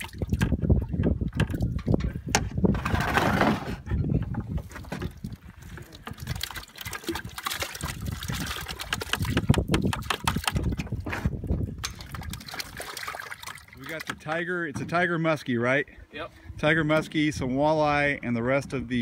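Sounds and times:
water splashing and dripping: 0.0s - 2.2s, 4.6s - 14.5s.

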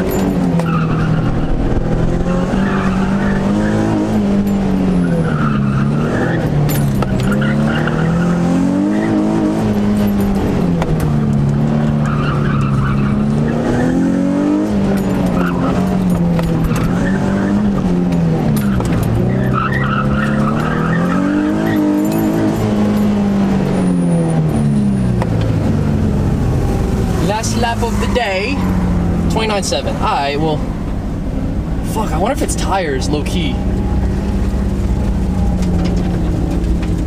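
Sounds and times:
car engine revving: 0.0s - 37.0s
tyres squealing: 11.9s - 22.8s, 27.2s - 31.0s.

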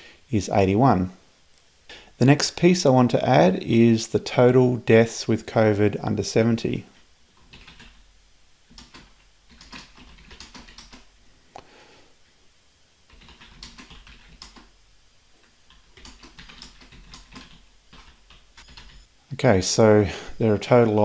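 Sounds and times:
typing on keyboard: 7.4s - 8.0s, 8.7s - 11.1s, 13.1s - 14.7s, 15.7s - 19.1s.

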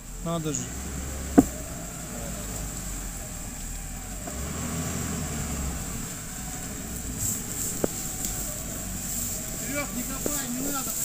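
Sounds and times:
off-road vehicle engine rumble: 0.0s - 11.0s
sharp knock: 1.4s - 1.6s.

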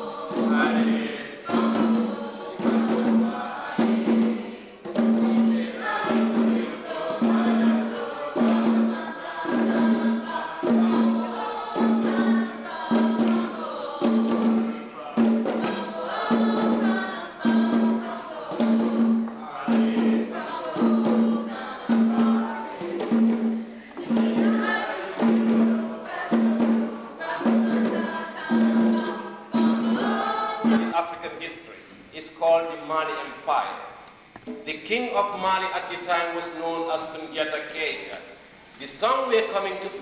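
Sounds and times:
hand drums: 0.0s - 31.0s, 34.3s - 34.8s
group singing: 0.0s - 31.1s.

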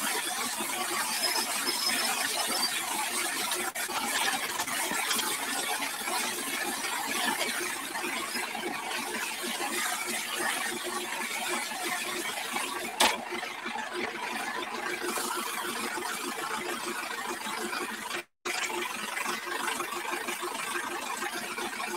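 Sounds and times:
hose water spraying on tractor: 0.0s - 13.4s.

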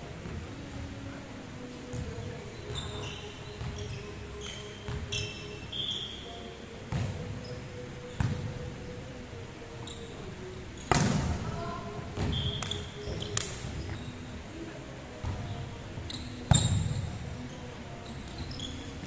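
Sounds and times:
sneakers squeaking: 1.9s - 8.7s, 9.7s - 11.4s, 12.1s - 19.0s
volleyball hits echoing: 10.9s - 11.4s.

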